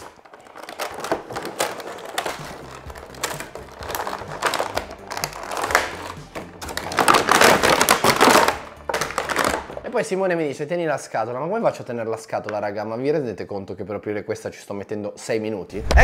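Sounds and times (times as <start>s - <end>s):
packaging clicking and rustling: 0.0s - 9.8s
background music: 0.0s - 16.0s.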